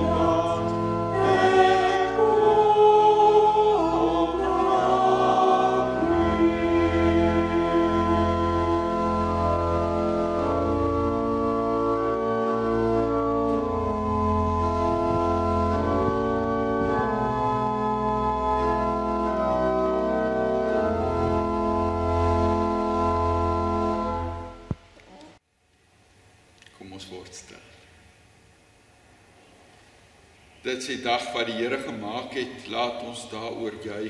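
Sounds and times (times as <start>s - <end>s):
organ playing slow chords: 0.0s - 24.8s.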